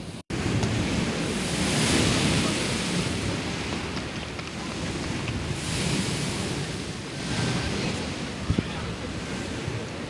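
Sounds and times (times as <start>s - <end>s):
sea waves splashing against a wall: 0.0s - 10.0s
wind buffeting microphone: 0.0s - 10.0s.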